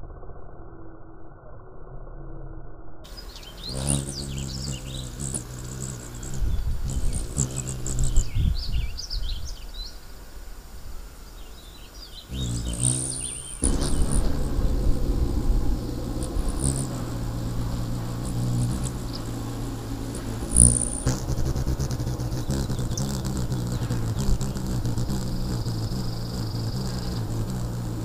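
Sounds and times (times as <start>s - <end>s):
hummingbird chip calls: 3.1s - 9.6s, 11.6s - 28.0s
hummingbird wings humming: 3.1s - 28.0s
wind on microphone: 3.2s - 9.8s, 12.3s - 28.0s.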